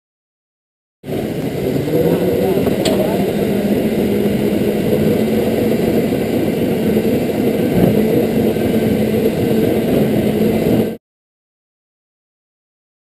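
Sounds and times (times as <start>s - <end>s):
go-kart engine drone: 1.0s - 11.0s.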